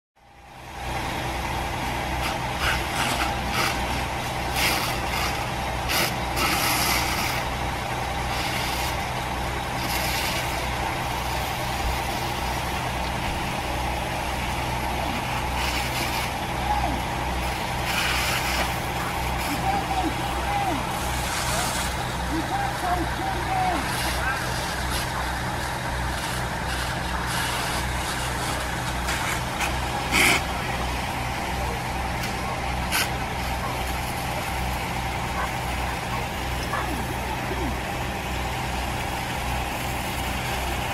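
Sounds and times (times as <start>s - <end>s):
diesel engine running: 0.2s - 40.9s
hiss and crackle bursts: 2.1s - 13.2s, 14.3s - 40.9s.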